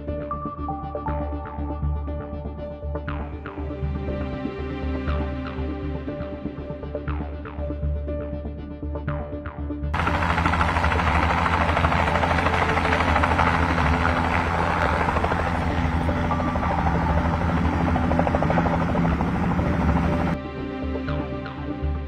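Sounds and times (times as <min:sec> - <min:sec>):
helicopter rotor chopping: 0:10.0 - 0:20.4.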